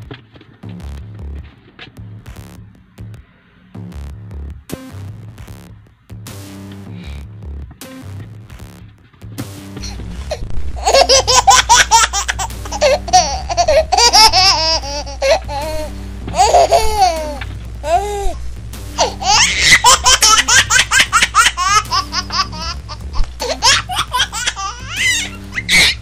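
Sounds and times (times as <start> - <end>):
background music: 0.0 - 26.0
low hum: 0.6 - 26.0
baby giggling: 9.8 - 18.4, 19.0 - 26.0.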